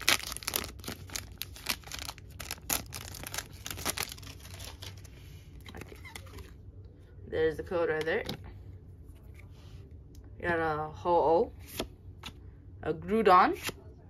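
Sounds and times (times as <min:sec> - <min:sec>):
foil wrapper tearing and crinkling: 0:00.0 - 0:05.0
cards rustling: 0:00.0 - 0:06.6.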